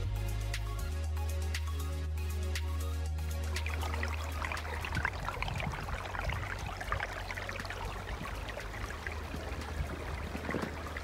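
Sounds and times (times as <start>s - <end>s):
stream babbling over stones: 3.5s - 11.0s.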